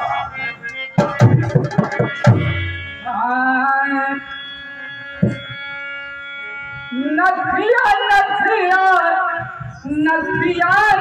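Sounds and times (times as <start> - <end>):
instrumental drone: 0.0 - 9.6
drum stroke: 1.0 - 2.8, 5.2 - 5.5.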